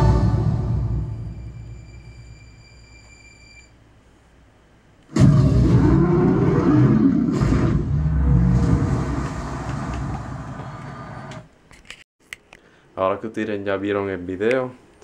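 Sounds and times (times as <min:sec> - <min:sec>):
loud crash: 0:05.1 - 0:06.0, 0:07.2 - 0:10.6
deep rumble: 0:05.1 - 0:11.4.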